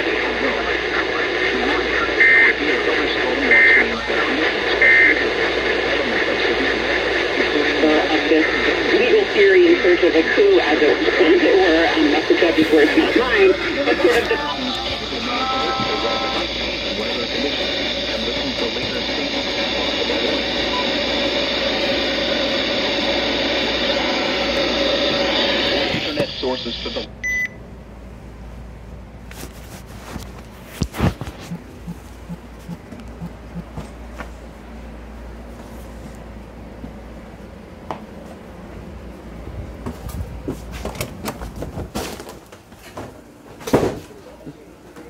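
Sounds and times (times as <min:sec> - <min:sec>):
radio static hiss: 0:00.0 - 0:27.1, 0:30.2 - 0:35.1
faint muffled radio audio: 0:00.0 - 0:27.4, 0:29.3 - 0:36.2
low steady hum: 0:00.0 - 0:40.4.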